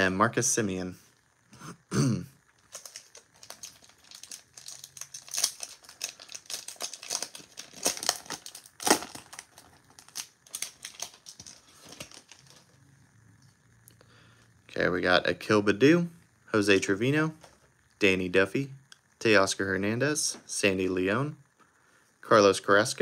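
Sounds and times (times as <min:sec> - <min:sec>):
plastic wrapper crinkling: 0:02.5 - 0:12.8
plastic wrapper ripping: 0:02.6 - 0:12.8.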